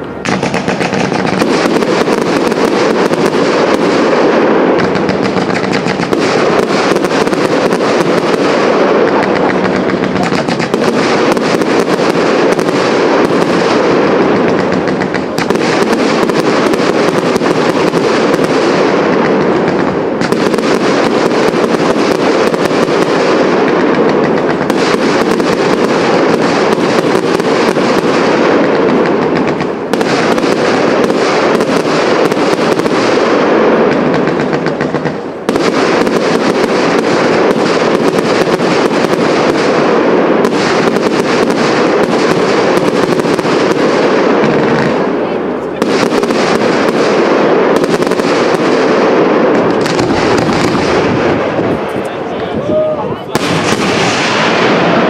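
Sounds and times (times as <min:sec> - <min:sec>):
fireworks crackling and banging: 0:00.0 - 0:55.0.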